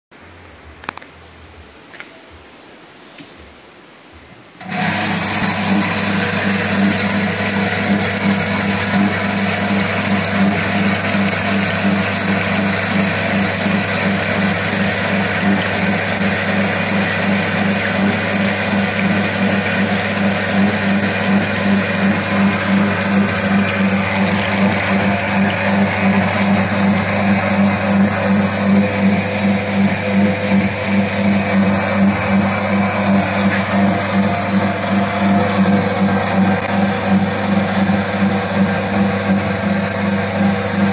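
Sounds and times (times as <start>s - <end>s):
electric pump motor humming: 4.6s - 40.9s.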